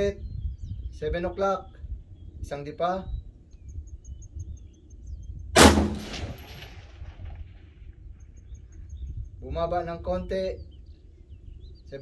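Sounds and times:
rifle shot with echo: 0:05.6 - 0:07.5.

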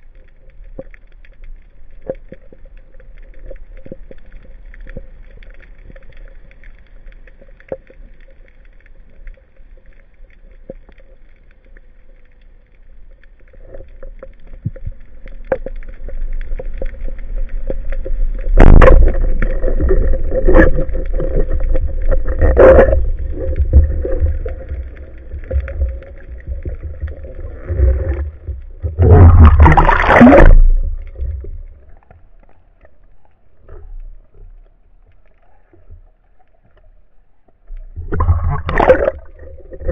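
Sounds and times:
rushing water: 0:13.4 - 0:32.9, 0:37.7 - 0:39.9.

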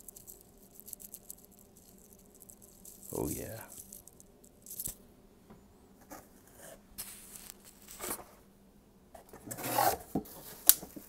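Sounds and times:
rustles and scuffs of packaging: 0:07.0 - 0:08.4.

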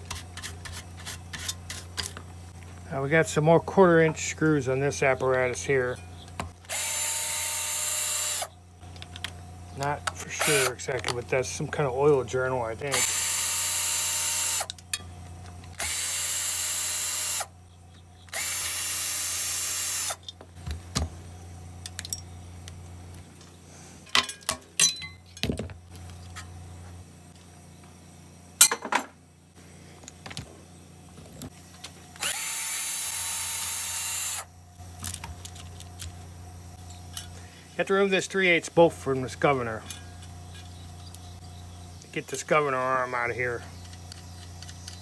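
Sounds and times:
cordless drill spinning: 0:06.6 - 0:08.5, 0:12.9 - 0:14.7, 0:15.8 - 0:17.5, 0:18.3 - 0:20.2, 0:32.1 - 0:34.5.

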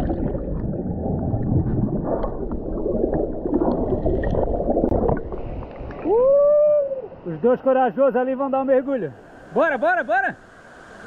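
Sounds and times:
muffled underwater rushing and bubbling: 0:00.0 - 0:06.1.

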